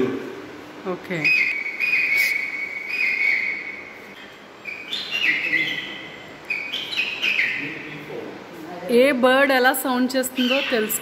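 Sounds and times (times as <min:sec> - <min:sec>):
recorded bird call whistles: 0:01.2 - 0:04.0, 0:04.6 - 0:07.8.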